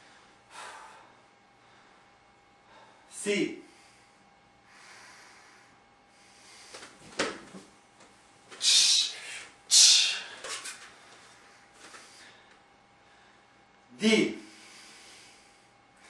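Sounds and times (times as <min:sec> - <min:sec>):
foot landing on mat: 0:06.8 - 0:07.7.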